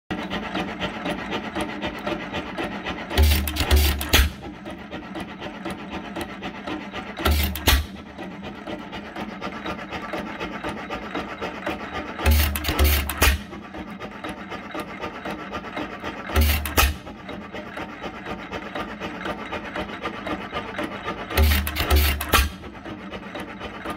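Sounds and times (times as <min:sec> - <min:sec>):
engine rapid clicking: 0:00.1 - 0:23.9
engine firing heavy thumps: 0:03.2 - 0:04.4.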